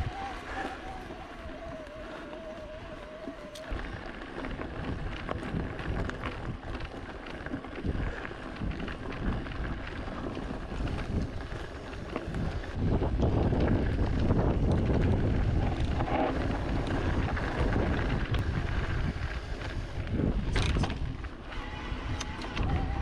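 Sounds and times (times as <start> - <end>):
electric motor whine: 0.0 - 5.2
tyres rumbling on trail: 0.0 - 23.0
wind buffeting microphone: 0.0 - 23.0.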